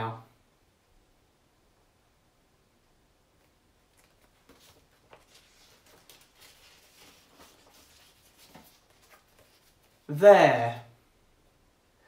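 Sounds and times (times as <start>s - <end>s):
paper flashcards rustling: 3.4s - 10.1s.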